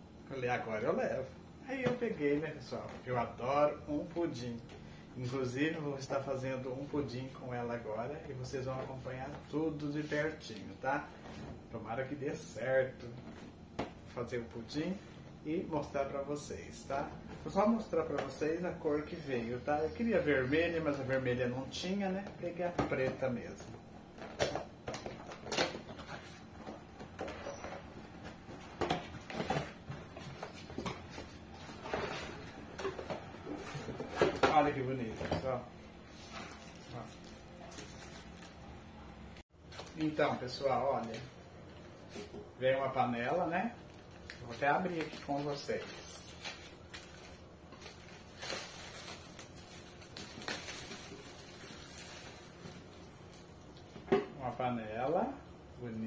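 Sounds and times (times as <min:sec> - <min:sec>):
cardboard rustling and scraping: 0:24.2 - 0:38.6
plastic wrapping crinkling: 0:43.8 - 0:53.8.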